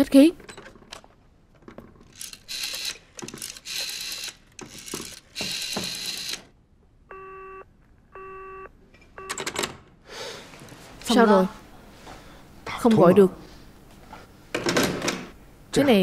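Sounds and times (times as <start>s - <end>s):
rotary dial whirring and clicking: 2.0s - 6.6s
telephone tone beeps: 7.1s - 9.5s.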